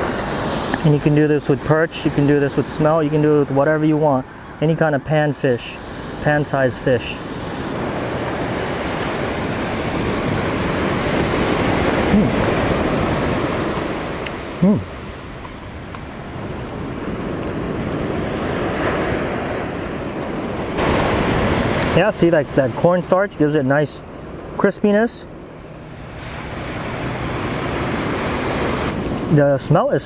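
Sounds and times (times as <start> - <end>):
surf breaking on beach: 0.0 - 3.8, 5.2 - 25.2, 26.0 - 30.0.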